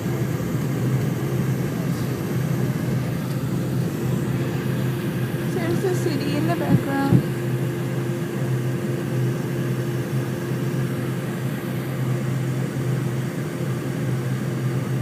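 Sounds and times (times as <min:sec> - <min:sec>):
jet engines droning in cabin: 0:00.0 - 0:15.0.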